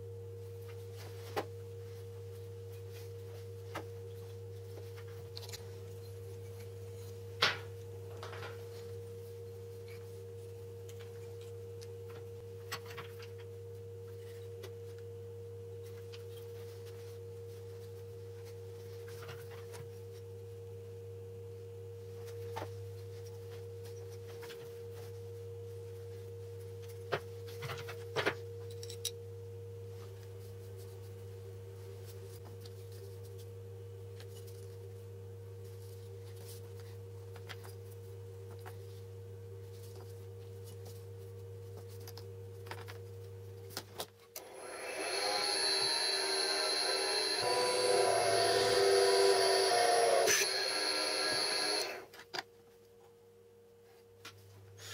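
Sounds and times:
two-tone hum: 0:44.4 - 0:52.2.

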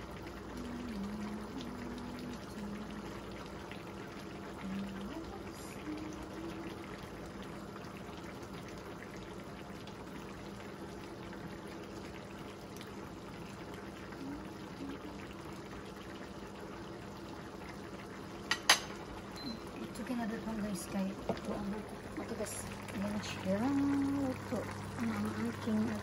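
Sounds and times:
faint low hum: 0:00.0 - 0:18.1
sauce bubbling in a frying pan: 0:00.0 - 0:26.0.

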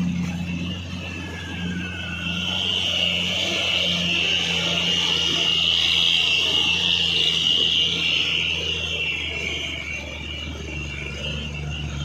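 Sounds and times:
diesel truck engines humming: 0:00.0 - 0:12.0.

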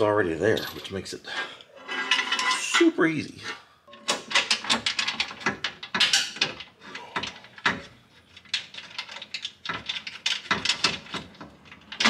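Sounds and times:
metallic clicks and knocks: 0:03.9 - 0:12.0.

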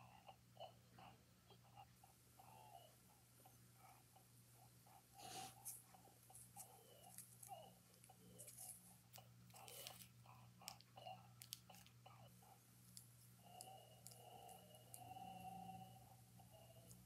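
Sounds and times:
crackly toy sound box: 0:05.4 - 0:12.3.

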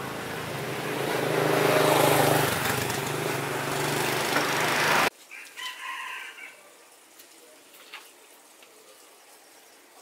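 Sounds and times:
rooster crowing: 0:05.3 - 0:06.8.

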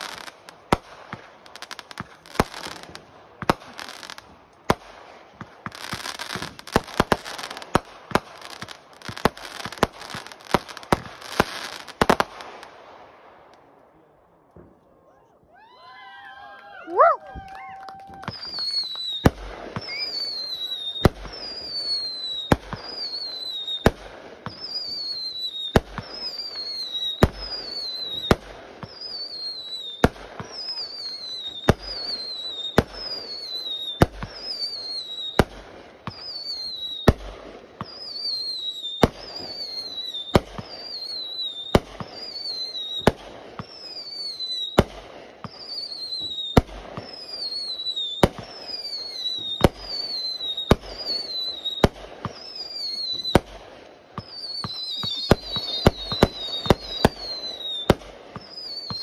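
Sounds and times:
firework bangs: 0:00.0 - 0:13.7, 0:16.9 - 0:59.0
firework crackling: 0:00.0 - 0:13.7, 0:15.5 - 0:59.0
falling whistle: 0:15.5 - 0:19.2, 0:19.8 - 0:23.7.

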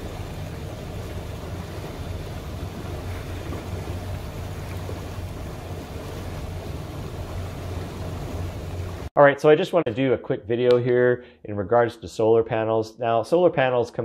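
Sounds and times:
boat engine low hum: 0:00.0 - 0:09.1
water washing along hull: 0:00.0 - 0:09.1.

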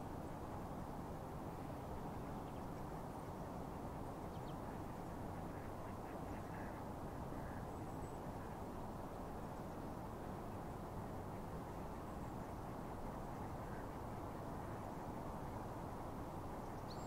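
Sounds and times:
ducks quacking faintly: 0:04.5 - 0:08.8.

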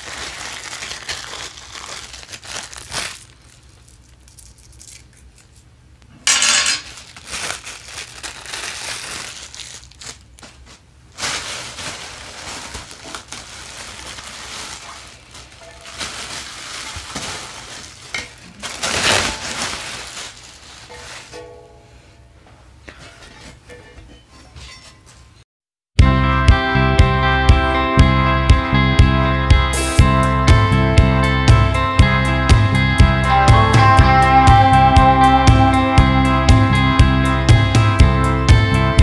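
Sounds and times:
plastic bag crinkling: 0:00.0 - 0:05.6, 0:06.3 - 0:21.6.

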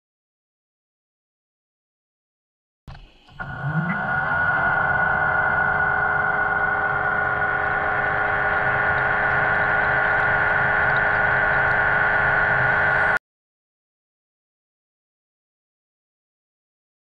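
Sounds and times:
electric motor whining underwater: 0:03.3 - 0:13.2.

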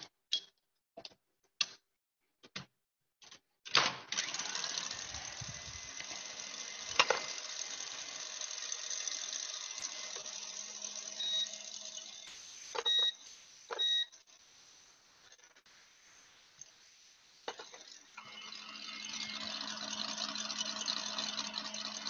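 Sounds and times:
stand mixer whirring: 0:04.2 - 0:12.3, 0:17.5 - 0:22.0
short electronic beeps: 0:11.2 - 0:14.2.

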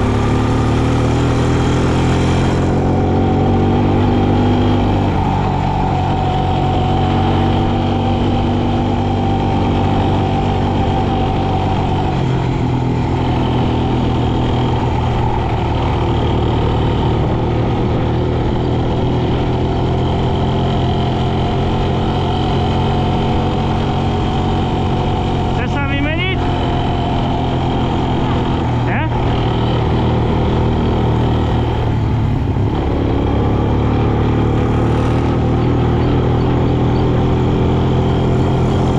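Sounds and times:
quad bike engine running: 0:00.0 - 0:38.9.

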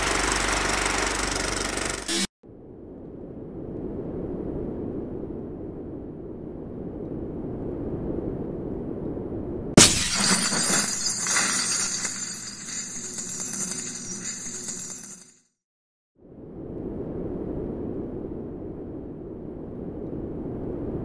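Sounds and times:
low rumble: 0:02.4 - 0:09.8, 0:16.2 - 0:21.0
glass shattering: 0:09.8 - 0:15.4.

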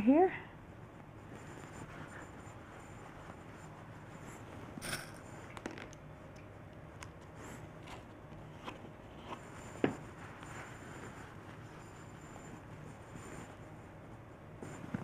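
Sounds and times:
shells and beads clicking: 0:04.8 - 0:05.2.

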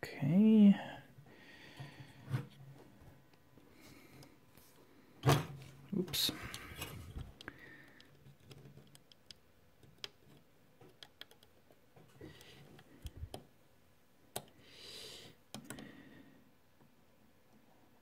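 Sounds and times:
metal pick clicking on plastic: 0:06.5 - 0:11.6.

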